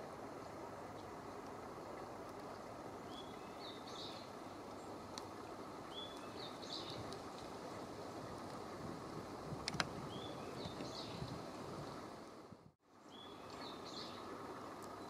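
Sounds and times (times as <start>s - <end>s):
faint click: 5.1s - 5.3s.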